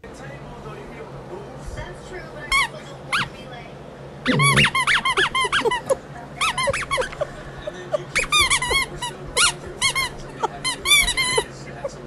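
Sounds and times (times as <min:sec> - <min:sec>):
squeaky toy squeaks: 0:02.5 - 0:03.4, 0:04.3 - 0:07.4, 0:08.0 - 0:12.0.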